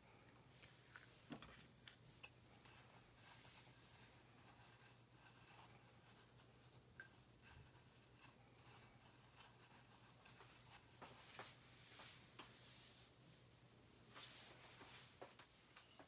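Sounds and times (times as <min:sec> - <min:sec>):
dough rolled in breadcrumbs: 0:02.4 - 0:13.1.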